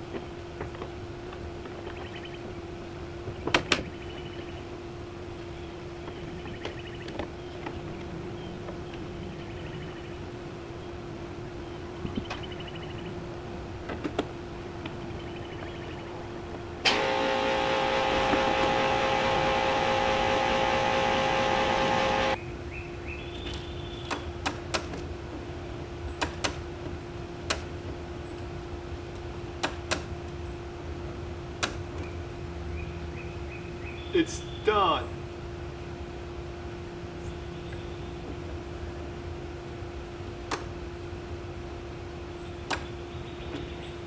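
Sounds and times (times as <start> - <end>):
power drill running: 16.9 - 22.4.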